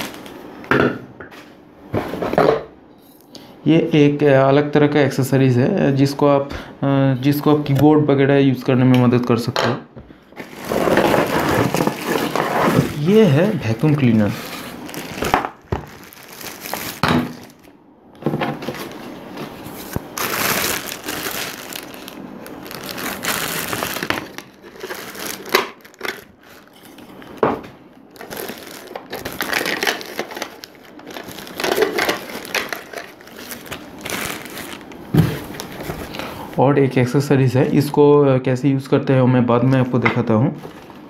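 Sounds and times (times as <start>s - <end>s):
plastic bag crinkling: 0.0s - 0.4s, 10.4s - 17.7s, 18.6s - 36.3s.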